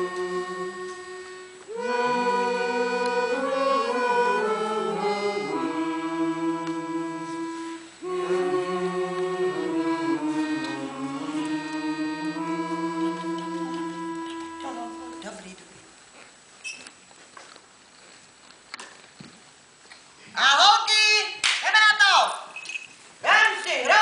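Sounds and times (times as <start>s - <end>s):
music of long held chords: 0.0s - 15.3s.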